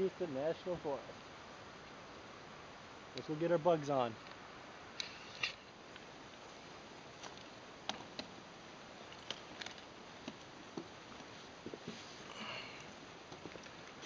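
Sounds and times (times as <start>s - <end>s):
steady hiss: 0.0s - 14.0s
short rustle: 11.2s - 14.0s.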